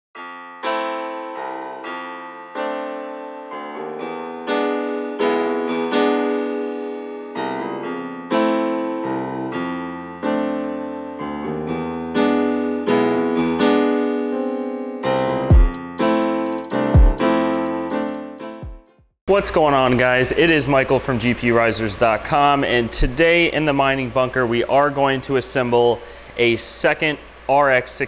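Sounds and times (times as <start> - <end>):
piano-like keyboard notes and chords: 0.2 - 19.0.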